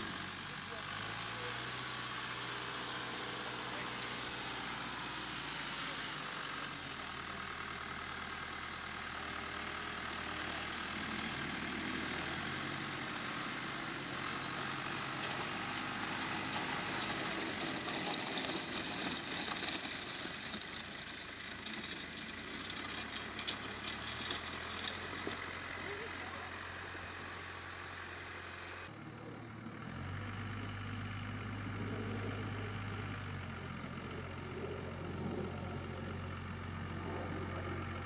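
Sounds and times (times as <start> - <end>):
diesel engines running: 0.0 - 38.0.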